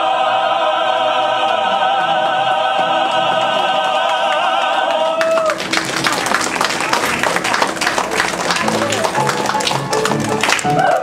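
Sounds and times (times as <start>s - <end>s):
choir holding a chord: 0.0s - 6.0s
audience applause: 2.2s - 11.0s.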